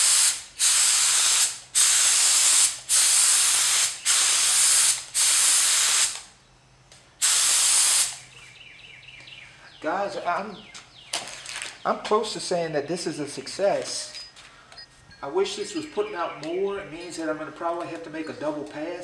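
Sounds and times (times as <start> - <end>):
spray gun hissing: 0.0 - 6.2, 7.2 - 8.2.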